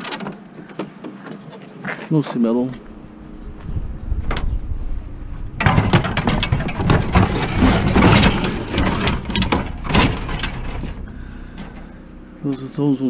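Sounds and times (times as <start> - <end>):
low engine hum: 2.4 - 13.0
metal scrap clanking: 5.6 - 12.0.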